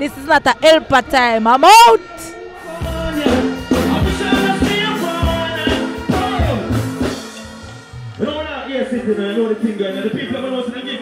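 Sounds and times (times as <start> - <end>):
person singing: 2.0 - 7.0
stage music with deep bass: 2.6 - 10.5.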